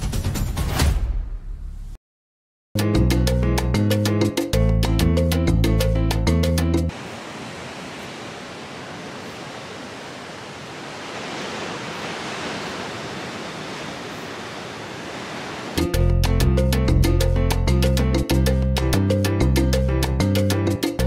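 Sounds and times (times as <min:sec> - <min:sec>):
ocean surf breaking on beach: 0:06.9 - 0:15.8.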